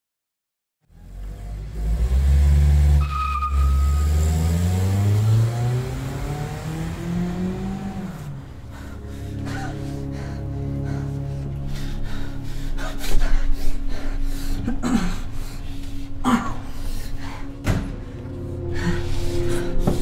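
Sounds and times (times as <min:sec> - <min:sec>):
car engine accelerating: 0:00.8 - 0:09.4
short high squeal: 0:03.0 - 0:04.3.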